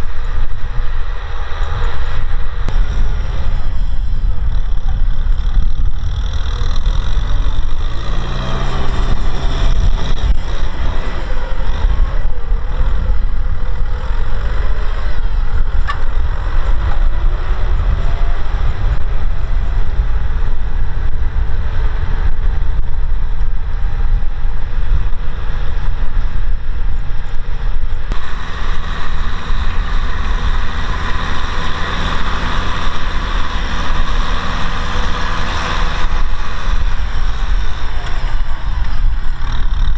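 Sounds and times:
tractor diesel engine under load: 0.0s - 39.9s.

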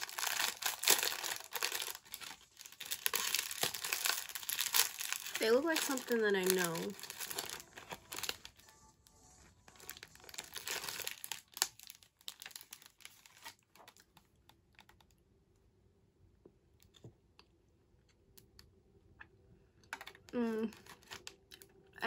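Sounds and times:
plastic wrapper crinkling: 0.0s - 14.3s, 20.0s - 21.8s.

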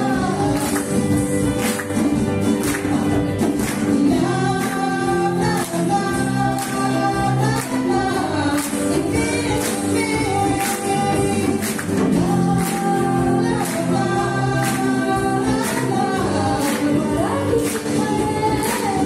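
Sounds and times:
acoustic guitars: 0.0s - 19.0s
audience clapping along: 0.0s - 19.0s.

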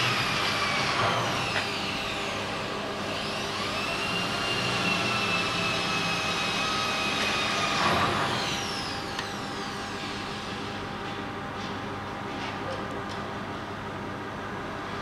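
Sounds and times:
drive motors whining: 0.0s - 10.5s.

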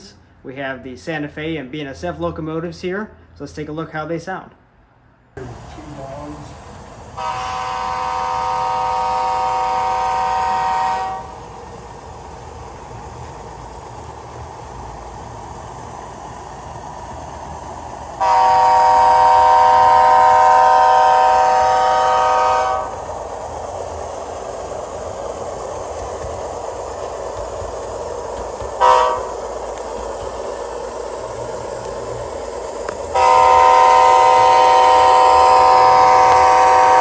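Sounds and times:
model locomotive running sound: 5.4s - 37.0s
model locomotive air horn: 7.2s - 11.4s, 18.2s - 23.0s, 28.8s - 29.4s, 33.1s - 37.0s.

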